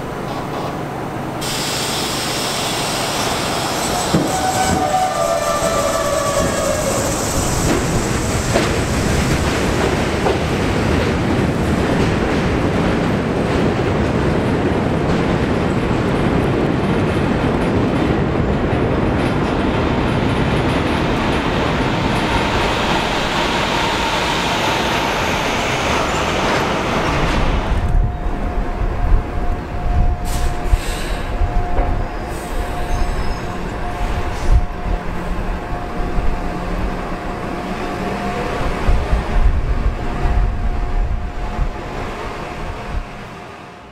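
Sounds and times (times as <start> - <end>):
subway train rumbling on rails: 0.0 - 43.9
high wheel squeal: 2.7 - 8.4, 32.1 - 34.6.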